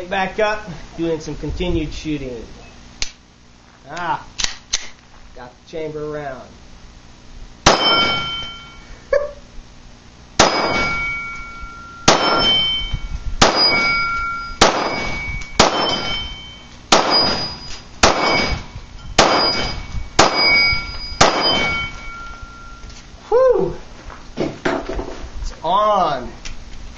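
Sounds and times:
pistol shots: 7.6s - 8.4s, 10.4s - 11.2s, 12.1s - 12.7s, 13.4s - 16.2s, 16.9s - 22.0s
steel target clanging: 7.6s - 8.9s, 10.4s - 22.8s.

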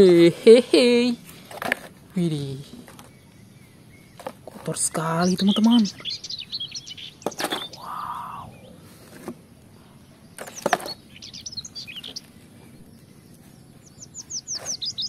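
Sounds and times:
small birds chirping: 0.0s - 15.0s
plastic toys clattering: 1.4s - 2.0s, 7.2s - 7.7s, 10.4s - 11.0s.

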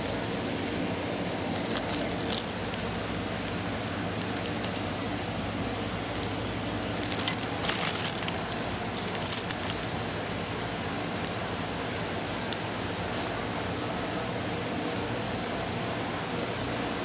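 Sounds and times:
background hum: 0.0s - 14.2s
plastic packaging crinkling: 1.5s - 5.0s, 6.1s - 10.0s, 11.1s - 11.4s, 12.5s - 12.7s.

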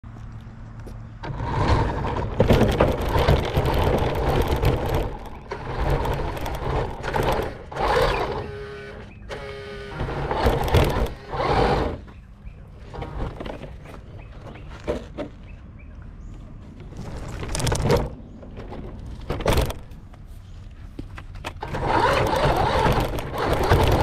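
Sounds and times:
tyres on road and gravel: 0.0s - 24.0s
toy car motor whining and rattling: 1.4s - 12.1s, 21.6s - 24.0s.

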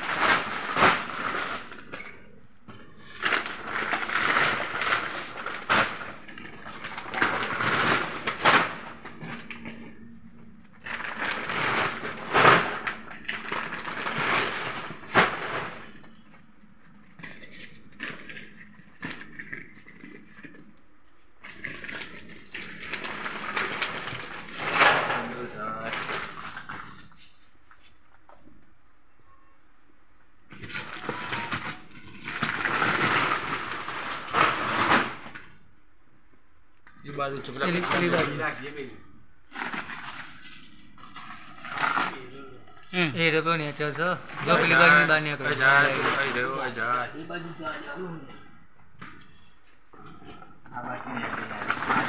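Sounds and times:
sacks rustling: 0.0s - 2.0s, 3.0s - 9.9s, 10.8s - 16.2s, 21.7s - 27.1s, 30.5s - 35.4s, 43.2s - 47.0s.

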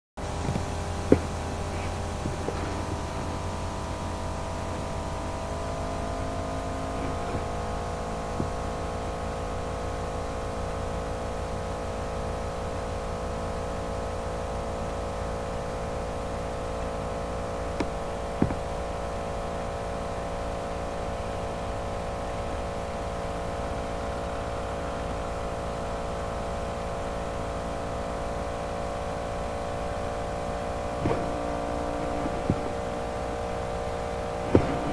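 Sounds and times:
sprayer machine whine: 0.2s - 13.2s, 29.2s - 34.9s
tractor engine drone: 0.2s - 34.9s.

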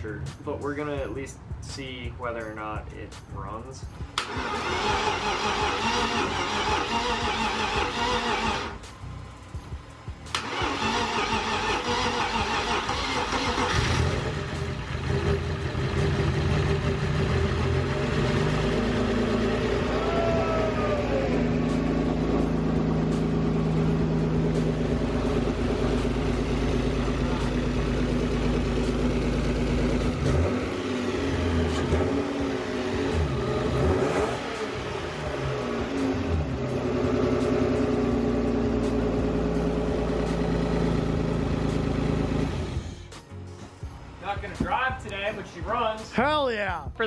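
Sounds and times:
car engine idling: 4.0s - 43.1s
engine cranking by starter: 4.2s - 8.9s, 10.3s - 20.0s, 24.6s - 35.8s.

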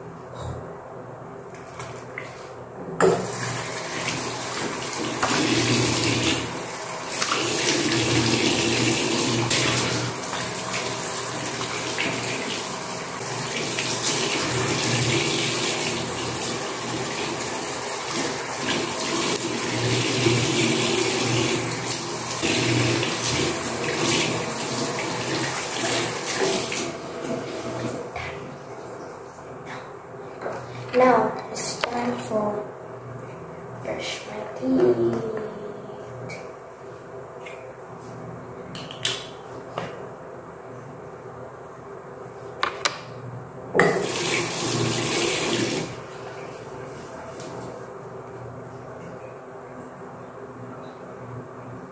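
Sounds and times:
tap water running into sink: 3.1s - 28.1s, 43.8s - 46.0s.

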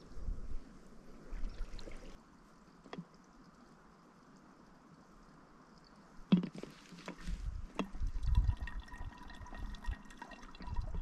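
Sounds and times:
water trickling into plastic bottle: 1.4s - 2.2s, 6.3s - 11.0s.

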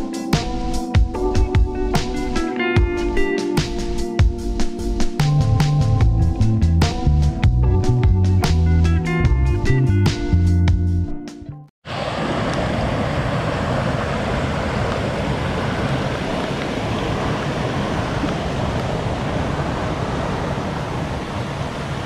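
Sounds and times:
water rushing over waterfall: 11.9s - 22.0s.

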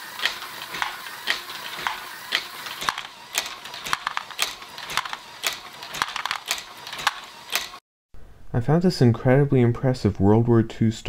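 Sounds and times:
plastic mechanism clicking: 0.2s - 7.8s.

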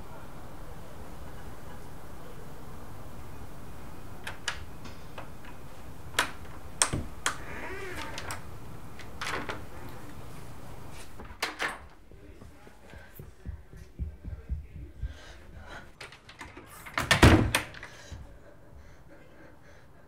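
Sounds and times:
low background hum: 0.0s - 20.0s
door lock clicking and rattling: 4.2s - 9.7s, 11.3s - 11.9s, 16.0s - 17.9s.

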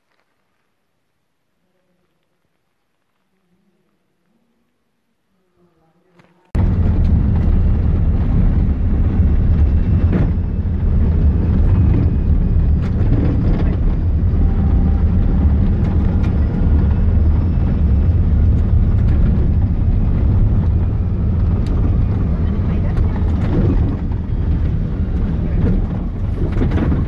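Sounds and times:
vehicle engine and tyre rumble: 0.0s - 0.9s, 6.5s - 27.0s.

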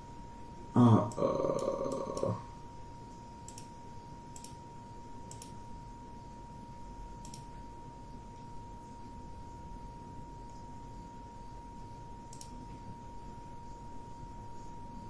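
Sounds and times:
faint high hum: 0.0s - 15.0s
computer mouse clicking: 3.4s - 4.6s, 5.2s - 5.6s, 7.2s - 7.6s, 12.3s - 12.7s.

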